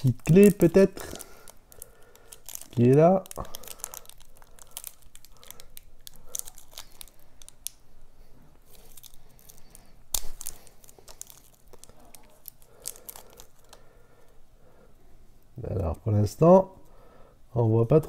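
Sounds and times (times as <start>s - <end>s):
plastic wrapping crinkling and tearing: 0.0s - 7.8s, 8.6s - 13.9s.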